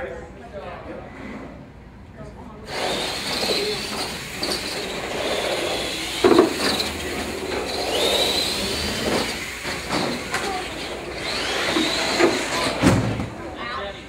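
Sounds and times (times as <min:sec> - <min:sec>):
electric motors whining: 0:02.7 - 0:13.2
toy trucks knocking on ramps: 0:06.1 - 0:10.7.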